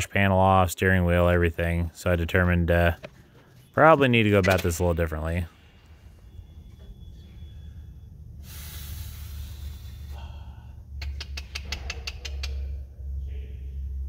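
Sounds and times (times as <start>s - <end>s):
steady low drone: 1.0s - 14.0s
rough rubbing hiss: 8.4s - 10.2s
sharp clicks: 11.0s - 12.7s.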